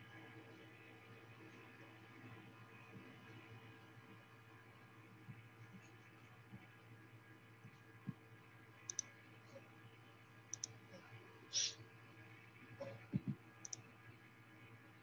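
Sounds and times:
low steady hum: 0.0 - 15.0
faint sharp clicks: 8.9 - 9.1, 10.5 - 10.8, 13.6 - 13.9
short hiss: 11.5 - 11.8.

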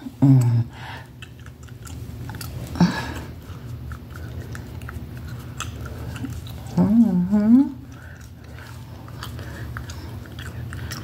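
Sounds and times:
steady low hum: 0.0 - 11.0
woman's voice murmuring: 6.7 - 7.9.

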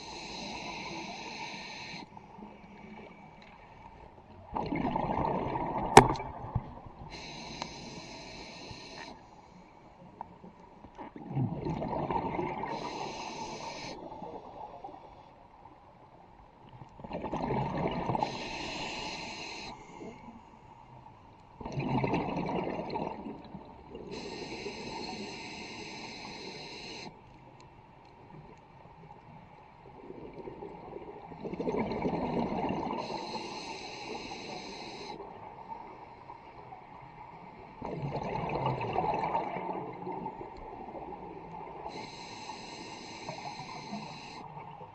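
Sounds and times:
regulator inhalation hiss: 0.0 - 2.1, 7.1 - 9.3, 12.7 - 14.1, 18.2 - 20.2, 24.1 - 27.2, 33.0 - 35.2, 41.9 - 44.5
exhaled air bubbling: 4.4 - 8.2, 11.1 - 15.0, 17.0 - 19.7, 21.6 - 26.6, 30.0 - 35.3, 37.7 - 44.9.

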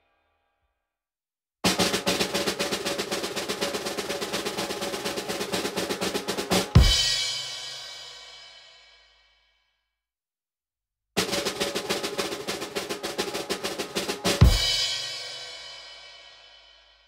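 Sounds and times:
snare drum roll: 1.6 - 8.1, 11.2 - 15.9.

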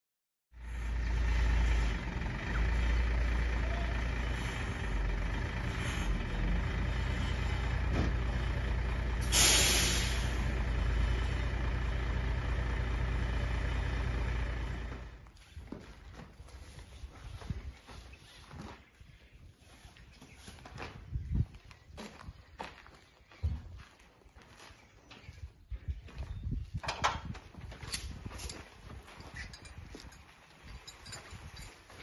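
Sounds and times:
diesel truck engine idling: 0.6 - 15.2
air brakes hissing: 9.2 - 10.7.

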